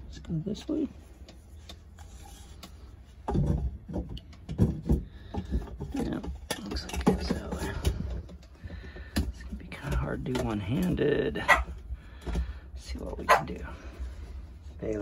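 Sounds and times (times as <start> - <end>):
plastic parts knocking and clicking: 2.6 - 11.0.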